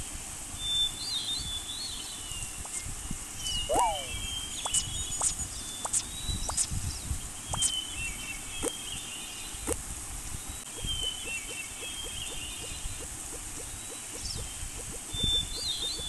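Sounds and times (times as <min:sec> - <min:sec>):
warbling bird chirps: 0:00.6 - 0:09.7, 0:10.4 - 0:16.0
sharp falling whistles: 0:02.7 - 0:06.7
rapid short animal calls: 0:03.6 - 0:04.8.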